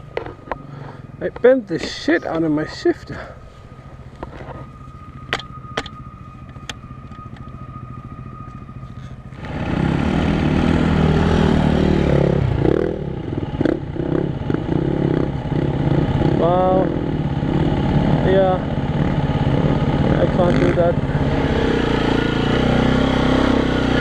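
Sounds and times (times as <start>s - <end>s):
dirt bike engine revving: 8.9s - 24.0s.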